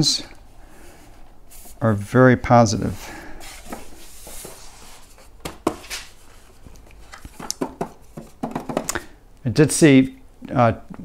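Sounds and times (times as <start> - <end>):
unicycle clicking and knocking: 7.4 - 9.1.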